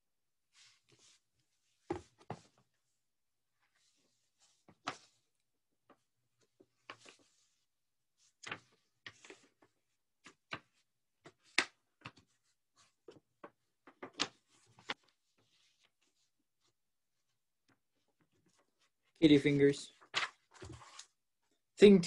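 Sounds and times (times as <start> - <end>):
paper rustling: 5.9 - 7.6, 8.2 - 16.3, 19.9 - 21.2.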